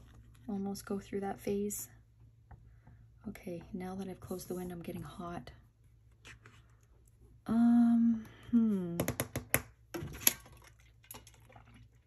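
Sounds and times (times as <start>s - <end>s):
woman humming: 7.5s - 9.1s.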